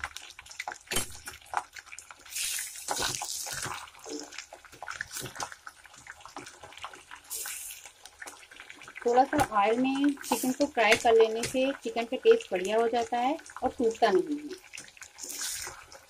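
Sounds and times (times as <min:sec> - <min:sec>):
chicken sizzling in hot oil: 0:00.0 - 0:16.0.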